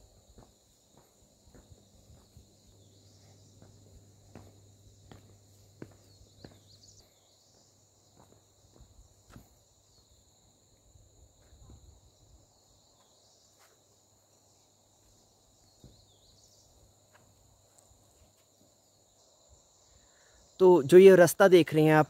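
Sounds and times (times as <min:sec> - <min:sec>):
soft footsteps: 0:00.0 - 0:09.6
crickets chirping: 0:00.0 - 0:22.0.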